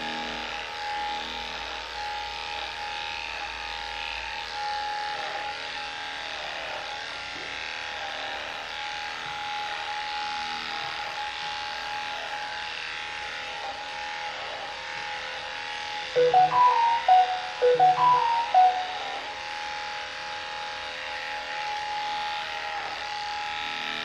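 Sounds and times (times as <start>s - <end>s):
electric clippers buzzing: 0.0s - 16.0s.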